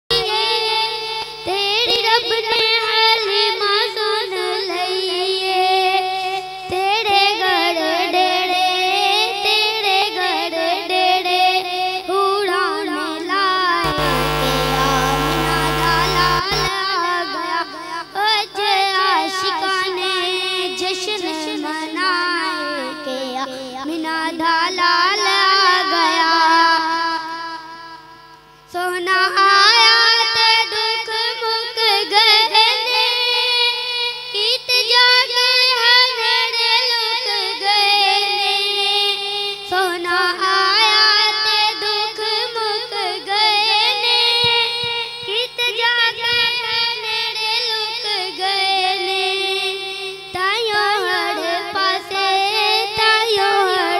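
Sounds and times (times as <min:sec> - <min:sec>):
boy singing over a pa system: 0:00.1 - 0:08.6, 0:28.7 - 0:53.9
steady noise: 0:13.8 - 0:16.7.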